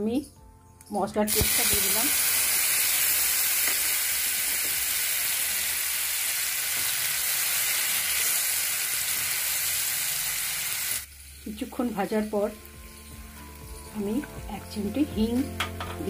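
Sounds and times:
spice paste sizzling in oil: 1.3 - 15.6.

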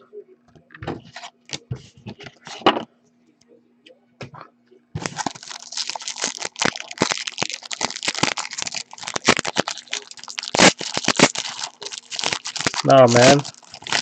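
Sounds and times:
foil wrapper crinkling and tearing: 5.0 - 14.0.

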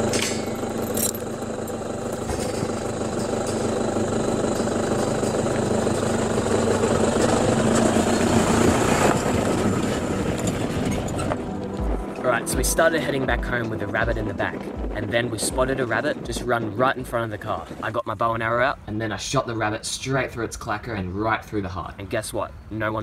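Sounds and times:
vehicle engine idling: 0.0 - 17.9.

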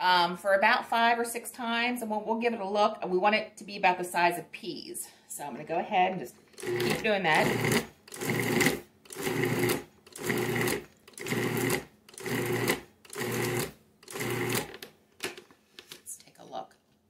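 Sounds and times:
food processor pulsing: 6.6 - 14.8.

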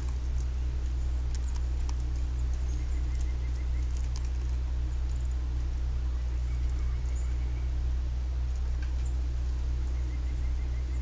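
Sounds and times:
woodpecker pecking on wire mesh: 0.0 - 5.7
steady low hum: 0.0 - 11.0.

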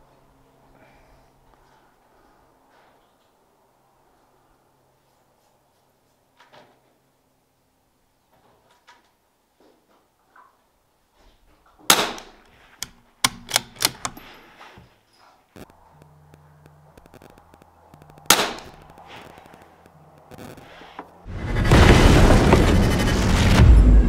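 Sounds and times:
gunshots: 11.9 - 12.4, 18.3 - 18.9.

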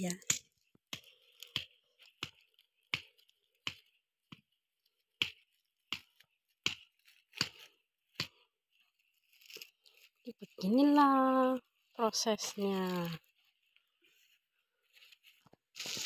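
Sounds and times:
plastic sheeting crackling: 12.4 - 16.0.

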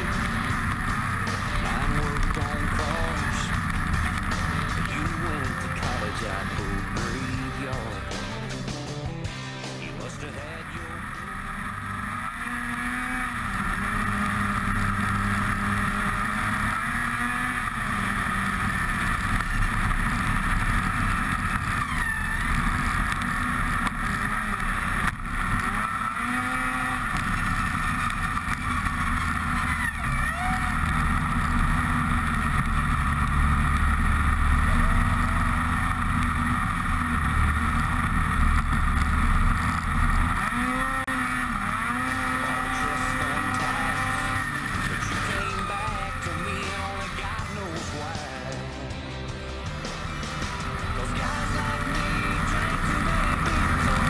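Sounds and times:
snowmobile engine running: 0.0 - 54.0
track noise: 0.0 - 54.0.

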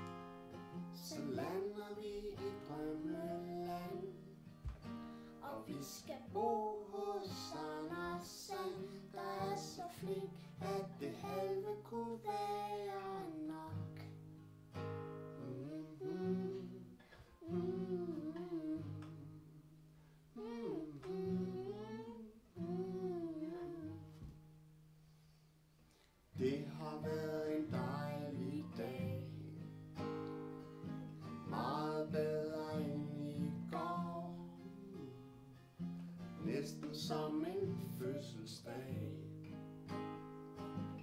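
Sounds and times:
acoustic guitar strumming: 0.0 - 19.8, 26.4 - 41.0
child singing: 1.0 - 4.3, 5.4 - 14.2, 15.4 - 19.4, 20.4 - 24.2, 26.4 - 29.5, 31.4 - 35.3, 36.4 - 39.2.

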